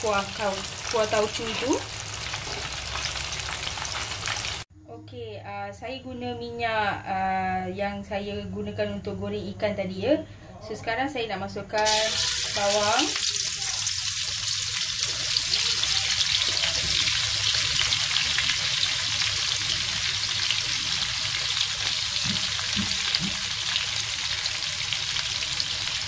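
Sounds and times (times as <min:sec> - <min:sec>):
onion rings sizzling in hot oil: 0:00.0 - 0:04.6, 0:11.8 - 0:26.0.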